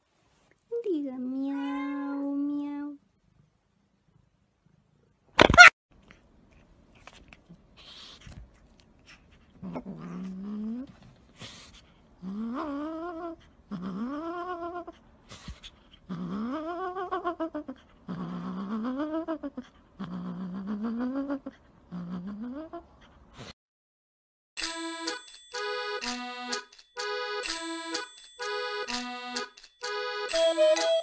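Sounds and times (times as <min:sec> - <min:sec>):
cat meowing: 0:01.5 - 0:02.2.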